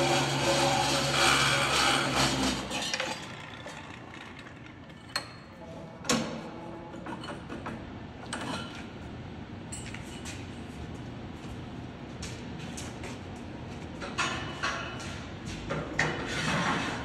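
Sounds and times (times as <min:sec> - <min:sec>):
saw cutting steel: 0:00.0 - 0:03.6.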